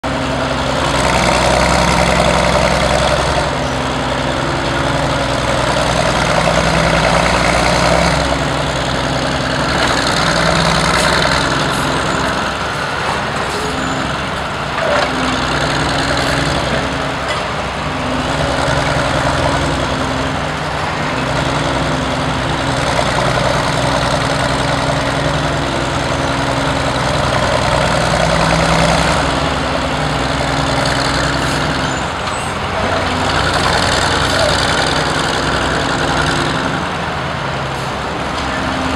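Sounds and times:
power shovel engine running hard: 0:00.0 - 0:38.9
machinery clatter: 0:09.5 - 0:17.7.

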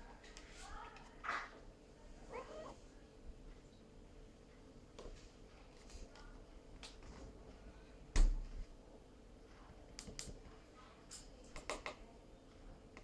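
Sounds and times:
light clicks and taps: 0:09.9 - 0:12.0.

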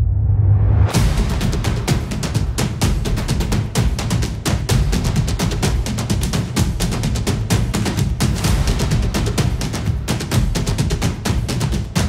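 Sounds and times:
fast percussion hits: 0:00.9 - 0:12.0
heavy bass beat: 0:00.9 - 0:12.0.

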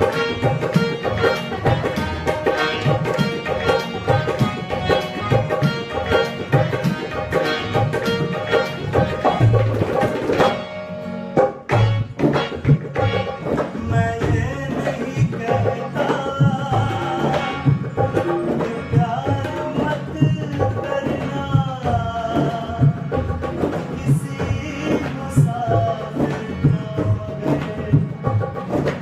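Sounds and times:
harmonium reed chords: 0:00.0 - 0:29.0
tabla drum strokes: 0:00.0 - 0:29.0
man singing: 0:13.0 - 0:29.0.

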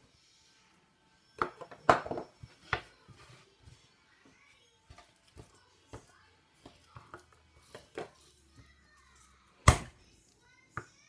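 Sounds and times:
kitchenware clattering: 0:01.4 - 0:03.4.

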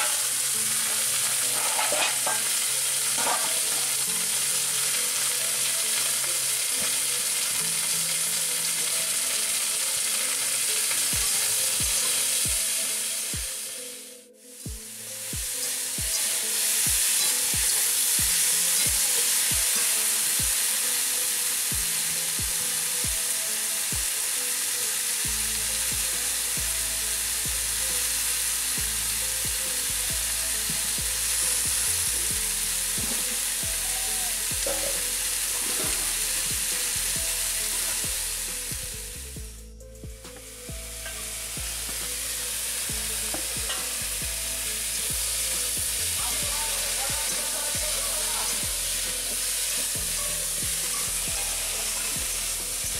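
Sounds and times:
metal spatula turning food: 0:00.0 - 0:12.4
vegetables sizzling in hot oil: 0:00.0 - 0:13.8, 0:14.8 - 0:39.3, 0:40.3 - 0:52.9.

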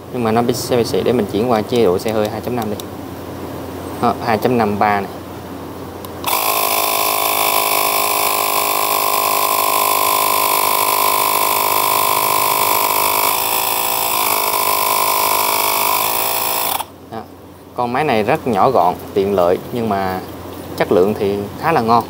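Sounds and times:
small air compressor droning: 0:06.2 - 0:17.0.

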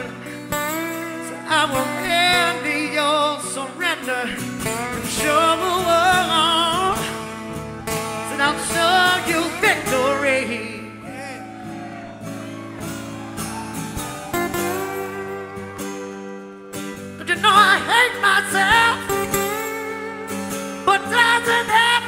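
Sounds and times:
pop song with singer: 0:00.0 - 0:11.8, 0:17.2 - 0:22.0.

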